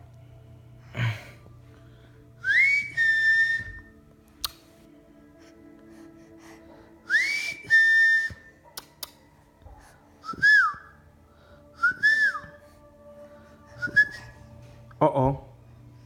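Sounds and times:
person whistling notes: 0:02.4 - 0:04.6, 0:07.0 - 0:09.1, 0:10.2 - 0:11.0, 0:11.8 - 0:12.7, 0:13.7 - 0:14.4.

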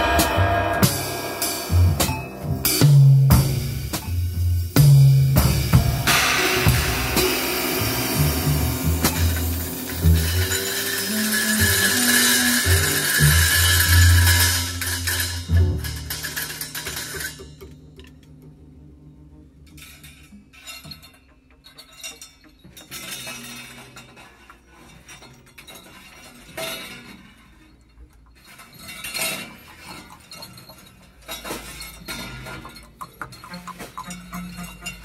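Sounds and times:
music: 0:00.0 - 0:24.7, 0:31.3 - 0:35.0
light clinks and knocks: 0:19.8 - 0:35.0.

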